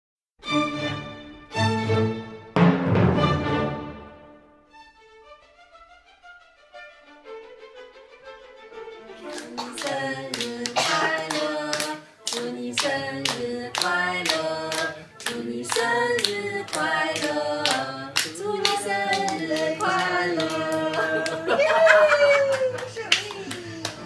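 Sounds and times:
adults singing a birthday tune: 9.2s - 22.4s
hands clapping rhythmically: 9.2s - 24.0s.

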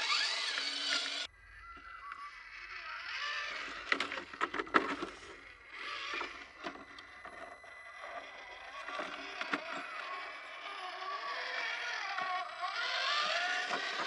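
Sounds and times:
small electric motor whining: 0.0s - 14.0s
tyres knocking and scraping on rock: 3.8s - 5.3s.

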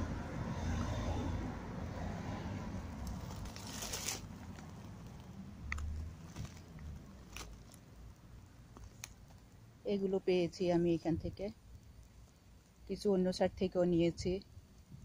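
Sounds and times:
rustling brambles and crunching gravel: 3.0s - 7.9s.

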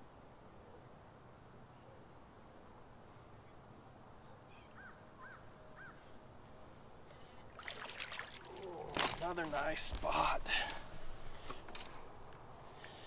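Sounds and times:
faint background noise: 0.0s - 13.0s
fish splashing at water surface: 7.5s - 9.1s.

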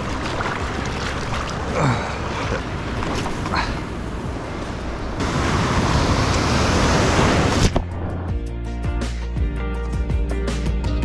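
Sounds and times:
ocean surf washing over boulders: 0.0s - 7.8s.

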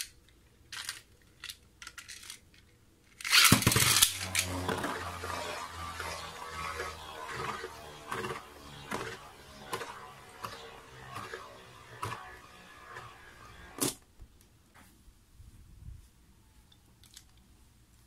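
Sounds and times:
spinning tops clacking together: 3.2s - 5.2s
spinning tops launch burst: 3.2s - 14.0s
spinning tops scraping and humming: 3.2s - 14.0s.

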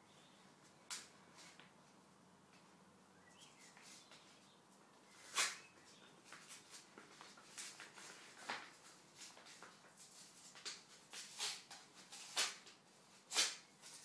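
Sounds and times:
paper ripping: 5.2s - 5.6s, 11.1s - 14.0s.

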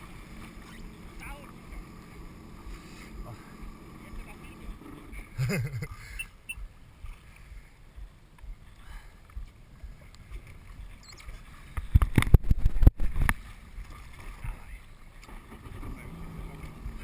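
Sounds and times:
jet ski idling: 0.0s - 11.0s, 14.6s - 17.0s.

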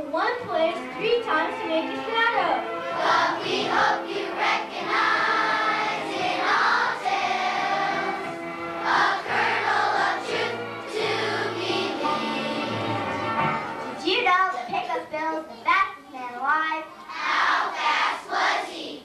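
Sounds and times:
children's choir singing: 2.8s - 13.9s, 17.1s - 19.0s.

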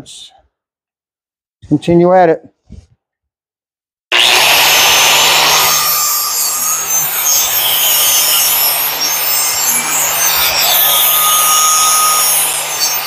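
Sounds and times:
grinder grinding steel: 4.1s - 13.0s
grinder motor hum: 4.1s - 13.0s.

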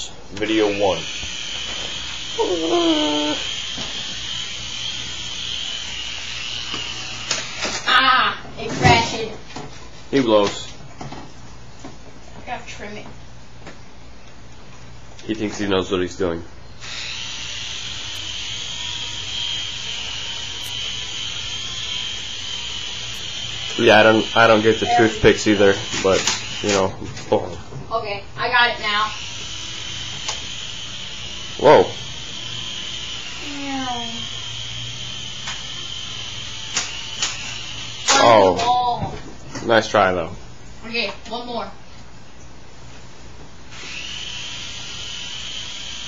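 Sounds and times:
toy helicopter motor whining: 0.5s - 8.1s, 16.8s - 26.9s, 28.5s - 38.8s, 43.7s - 46.0s.

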